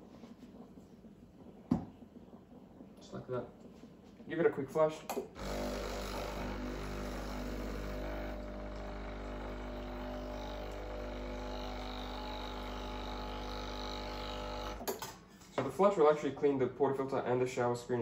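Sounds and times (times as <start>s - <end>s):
espresso machine pump humming: 5.3s - 15.0s.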